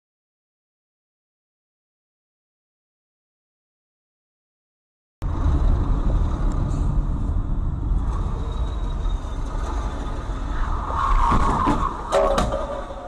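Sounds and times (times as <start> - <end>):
car road and engine rumble: 5.2 - 13.0.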